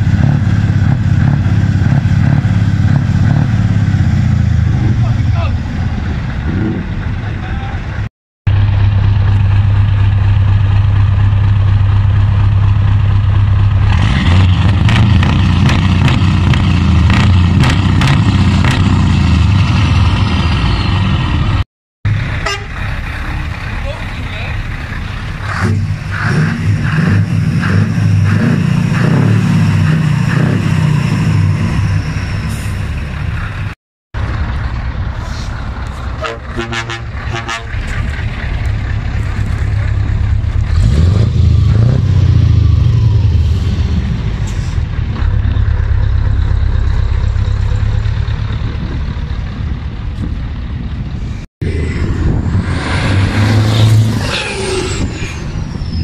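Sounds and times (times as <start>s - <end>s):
diesel truck engine rumbling: 0.0s - 56.0s
truck pulling away whine: 0.0s - 56.0s.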